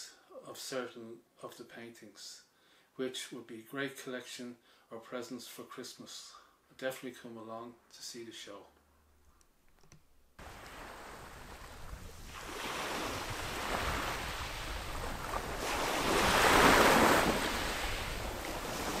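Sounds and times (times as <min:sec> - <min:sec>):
sea waves breaking on rocks: 0:10.4 - 0:19.0.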